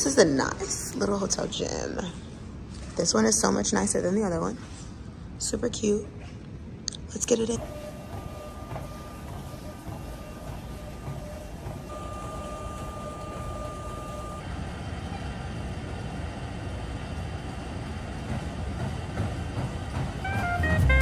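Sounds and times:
treadmill running: 7.2 - 21.0
steady high tone: 7.6 - 16.1.

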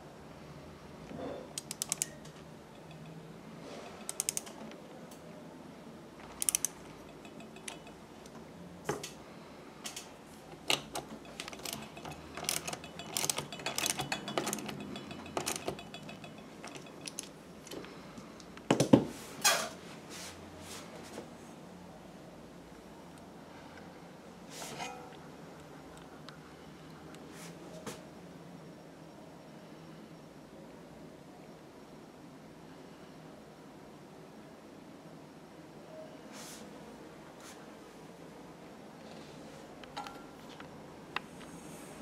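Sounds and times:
ratchet wrench clicking: 1.6 - 2.1, 3.9 - 4.5, 6.4 - 8.0, 11.2 - 17.3
metal clicks and knocks: 1.6 - 3.2, 6.4 - 8.1, 10.6 - 17.8.

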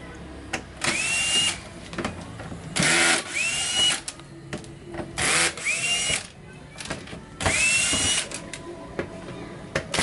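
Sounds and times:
cordless drill whining: 2.8 - 4.0, 5.2 - 6.2, 7.5 - 8.3.

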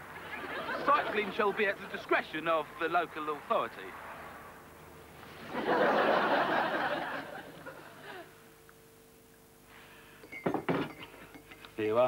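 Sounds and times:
audience laughing: 0.1 - 2.1, 5.4 - 8.3.

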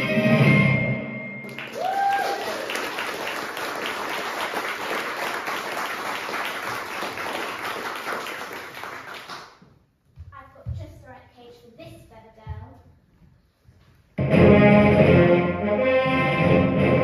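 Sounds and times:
audience applauding: 1.4 - 9.6
person whooping: 1.7 - 2.8.

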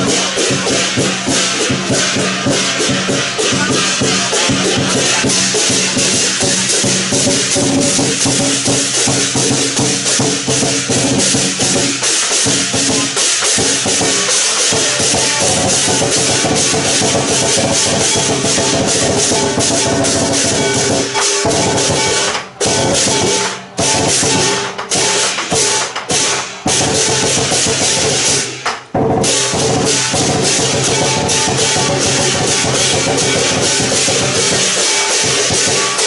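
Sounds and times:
big drum beating: 0.0 - 36.0
cymbals clashing: 0.0 - 36.0.

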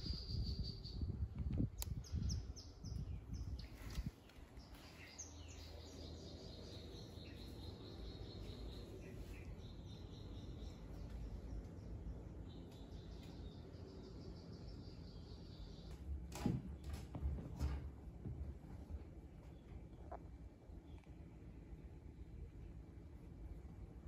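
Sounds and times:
birds chirping: 0.0 - 16.1.

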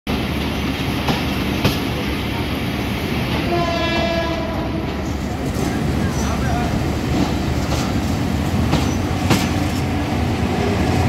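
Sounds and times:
train rumbling and rattling: 0.1 - 11.0
train horn: 3.4 - 5.0.

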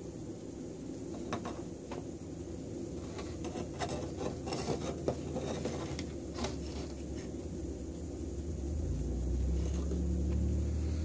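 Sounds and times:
gas burner flame rumble: 0.0 - 11.0
burner clicks and scrapes: 2.8 - 7.4.

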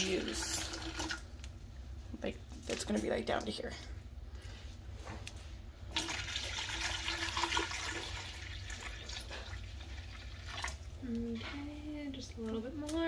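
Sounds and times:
juice pouring into plastic pitcher: 0.0 - 1.4, 5.9 - 10.9.

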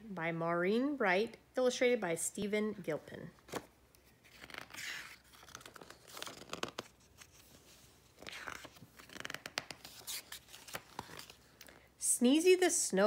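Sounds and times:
book pages turning: 3.4 - 11.8.

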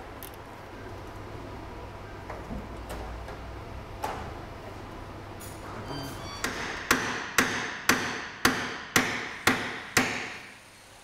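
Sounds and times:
hammer striking metal: 6.4 - 10.5.

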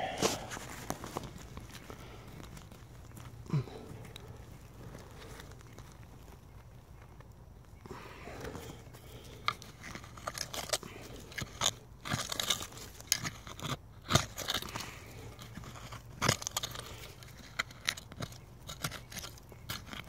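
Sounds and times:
digging tool crunching into soil: 8.3 - 20.0.

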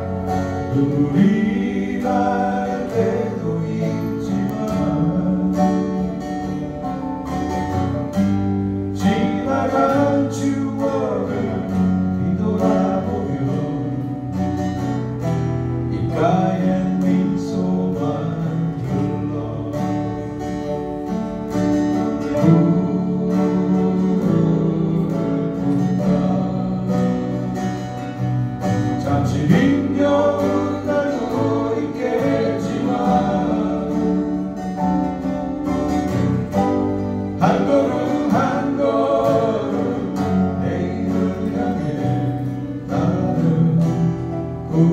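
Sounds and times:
bass guitar: 0.0 - 44.9
keyboard: 0.0 - 44.9
strummed acoustic guitars: 0.0 - 44.9
person singing: 0.2 - 7.3, 22.2 - 28.0, 29.0 - 34.8.

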